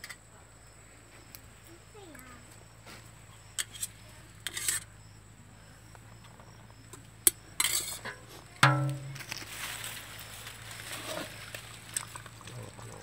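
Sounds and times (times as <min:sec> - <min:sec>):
spoon scraping steel pots: 0:03.6 - 0:04.9, 0:07.6 - 0:09.1
metal spoon clinking on pots: 0:07.6 - 0:09.2.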